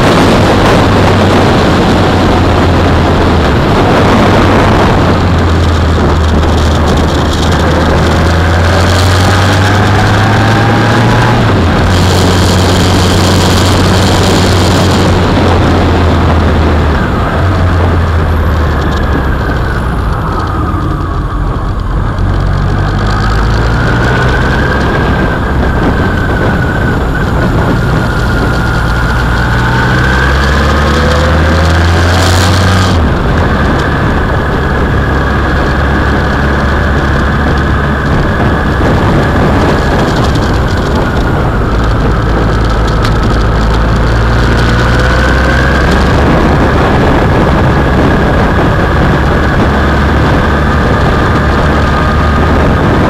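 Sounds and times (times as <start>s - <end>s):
motorcycle engine running: 0.0s - 53.0s
wind and road noise: 0.0s - 53.0s.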